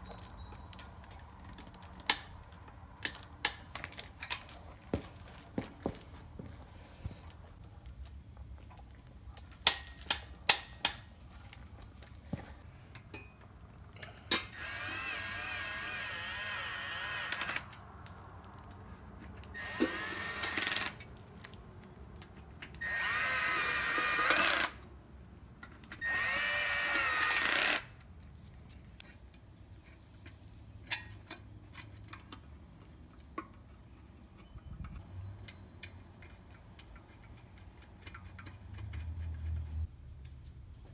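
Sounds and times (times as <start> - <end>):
sharp metallic clinks: 0.0 - 8.4, 9.3 - 12.2
cordless power tool whine: 14.5 - 17.7, 19.6 - 21.0, 22.8 - 24.8, 26.0 - 27.9.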